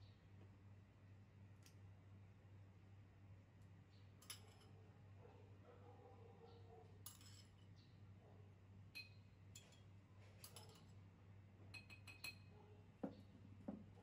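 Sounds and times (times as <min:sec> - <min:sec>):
metal spoon clinking porcelain bowl: 0:04.2 - 0:04.8, 0:07.0 - 0:07.6, 0:08.9 - 0:11.0, 0:11.7 - 0:12.5.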